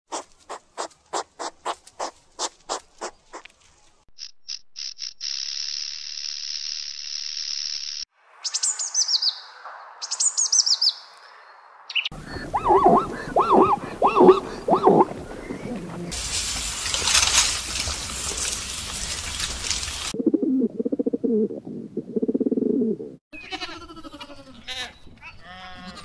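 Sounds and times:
squirrel chirping: 11.9s - 15.5s
zebra barking calls: 12.2s - 16.1s.

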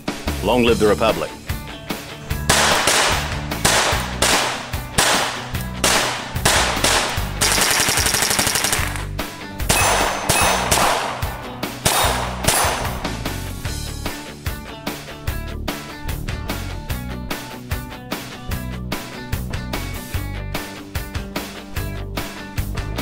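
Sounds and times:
rock music with guitar: 0.0s - 23.0s
gunshots: 2.4s - 13.3s.

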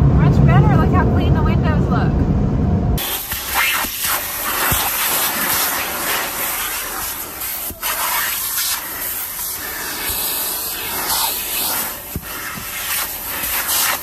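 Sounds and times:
brushes scrubbing vehicle body: 3.0s - 14.0s
water jets spraying: 3.0s - 14.0s.

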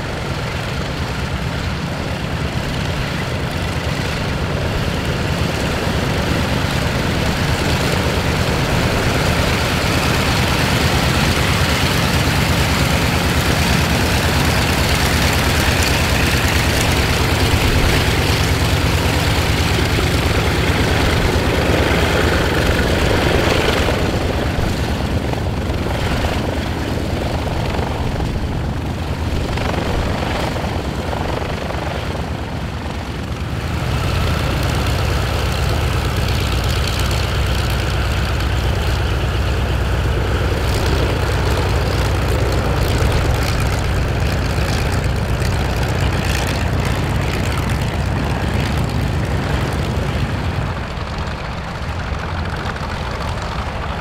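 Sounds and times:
radial aircraft engine running: 0.0s - 54.0s.

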